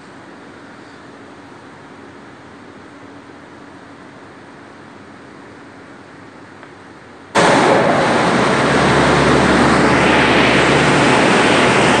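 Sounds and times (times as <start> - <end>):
industrial humidifier roaring: 0.0 - 12.0
low hum: 7.4 - 12.0.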